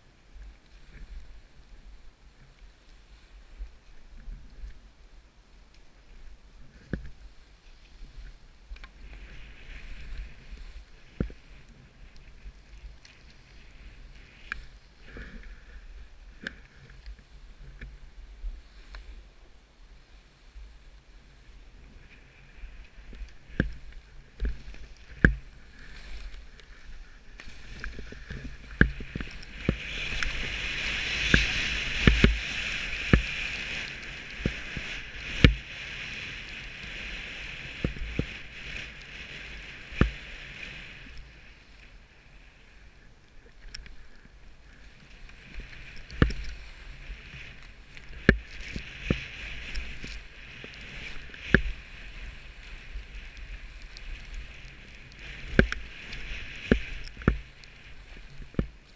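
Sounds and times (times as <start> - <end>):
skis hissing over snow: 0.4 - 58.9.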